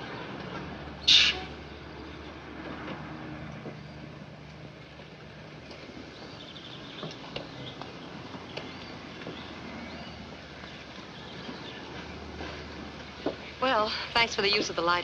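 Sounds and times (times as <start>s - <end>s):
birds chirping: 3.6s - 15.0s.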